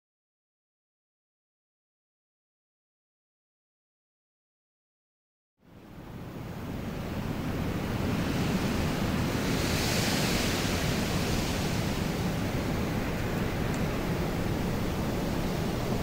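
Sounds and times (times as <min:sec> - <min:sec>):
steady rushing noise: 0:06.3 - 0:16.0.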